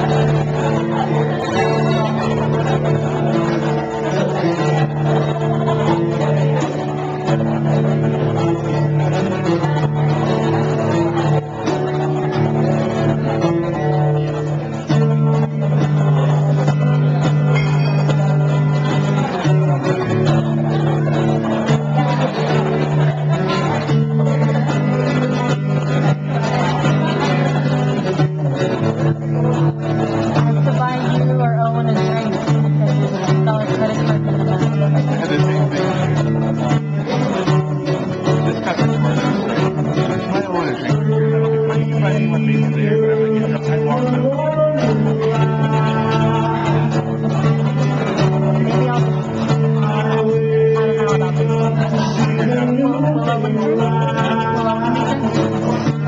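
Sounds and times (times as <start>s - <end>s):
acoustic guitar strummed: 0.0s - 56.0s
man singing: 0.0s - 56.0s.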